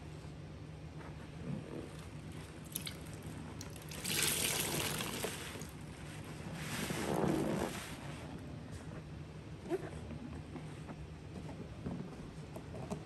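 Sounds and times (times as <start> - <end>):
liquid trickling and splashing: 2.6 - 5.8.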